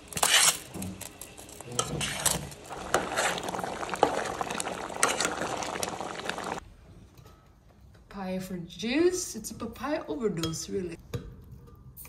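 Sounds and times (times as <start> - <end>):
metal spoon scraping steel pot: 1.8 - 3.4.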